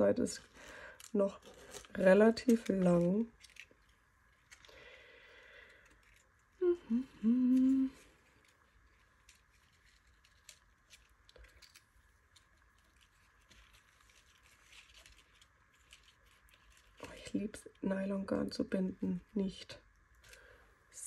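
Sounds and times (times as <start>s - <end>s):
soft ticks and rustles of yarn: 0.0s - 4.7s, 5.8s - 21.0s
woman humming: 6.6s - 8.1s.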